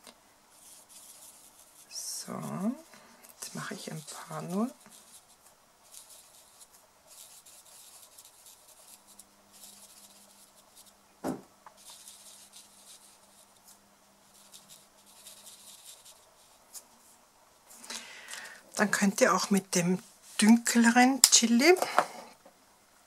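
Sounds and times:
marker scratching on card: 0.5 - 2.8, 3.4 - 11.0, 11.8 - 16.8.

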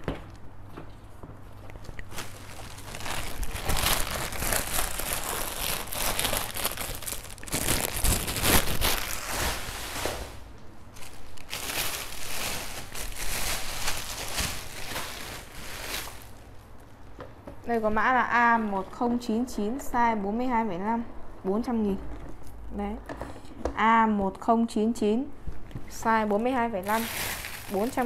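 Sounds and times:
plastic bags crinkling: 1.9 - 16.7, 26.8 - 28.0.

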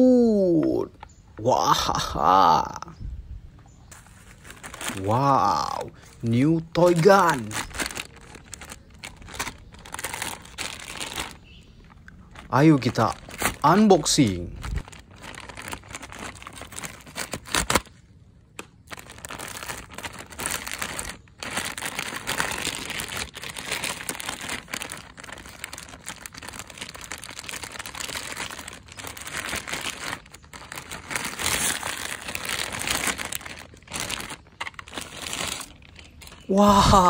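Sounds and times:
plastic bag crinkling: 3.8 - 37.0.

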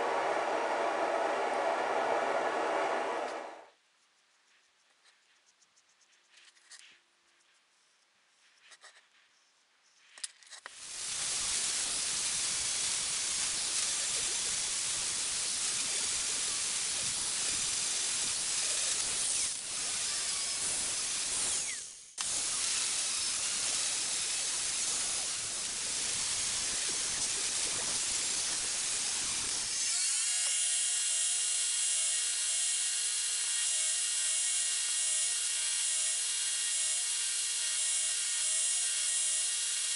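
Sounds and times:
angle grinder grinding steel: 10.7 - 39.9
belt grinder whining: 10.7 - 39.9.

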